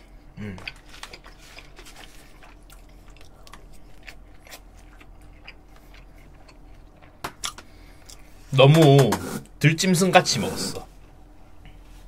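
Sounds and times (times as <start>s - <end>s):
person chewing food: 0.0s - 8.4s.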